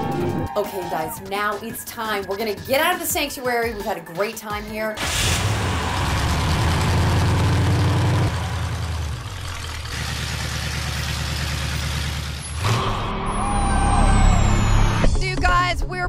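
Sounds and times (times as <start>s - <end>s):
hot rod engine running: 5.0s - 13.1s
high falling whistle: 12.5s - 15.1s.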